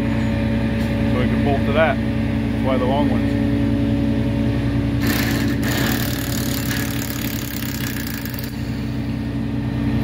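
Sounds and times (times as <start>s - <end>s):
engine idling: 5.0s - 9.6s.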